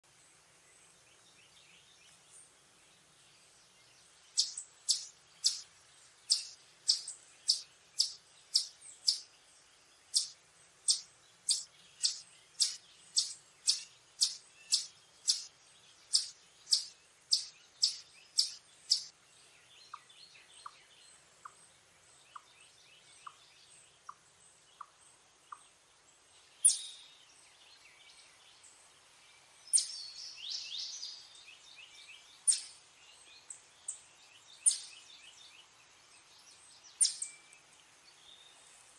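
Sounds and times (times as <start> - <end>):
chipmunk chip calls: 4.3 - 9.3, 10.1 - 19.1, 32.5 - 32.7, 34.6 - 34.9, 37.0 - 37.3
fainter lower ticks: 4.4 - 5.7, 6.3 - 9.3, 10.2 - 15.5, 16.1 - 19.1.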